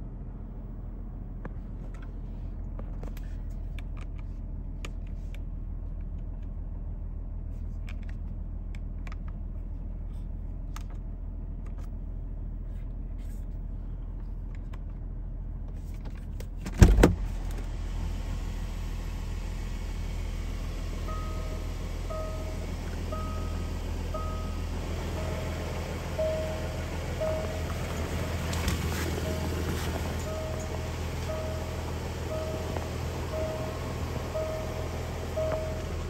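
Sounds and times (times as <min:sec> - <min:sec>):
car engine idling: 0:17.2 - 0:36.0.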